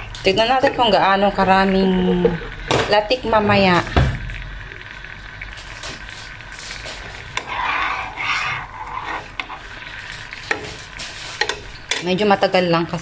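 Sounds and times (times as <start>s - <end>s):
coconut cream bubbling and sizzling: 0.0s - 13.0s
metal spoon scraping a pan: 6.6s - 12.1s.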